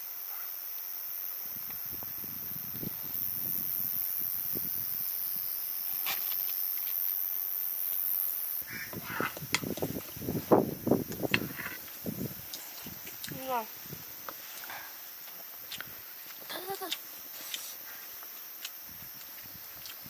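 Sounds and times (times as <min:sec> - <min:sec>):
high-pitched hiss: 0:00.0 - 0:20.0
loud short animal calls: 0:08.6 - 0:09.4.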